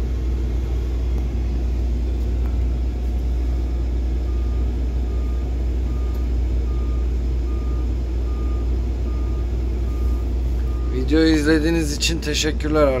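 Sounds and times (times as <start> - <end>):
diesel engine droning: 0.0 - 13.0
reversing alarm beeping: 4.2 - 11.4.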